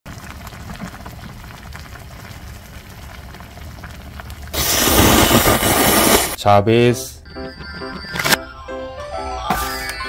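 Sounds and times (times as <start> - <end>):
broth bubbling and crackling: 0.1 - 6.4.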